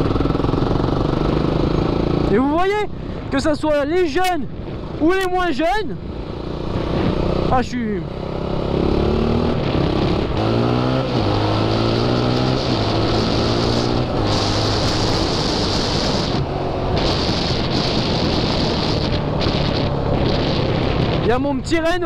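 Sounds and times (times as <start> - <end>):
wind rushing over microphone: 0.0 - 22.0
quad engine revving: 6.6 - 21.4.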